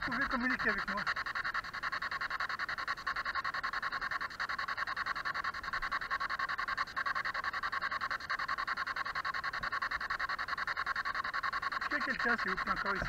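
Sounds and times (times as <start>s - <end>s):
radio static chopping rapidly: 0.0s - 1.4s, 9.4s - 13.0s.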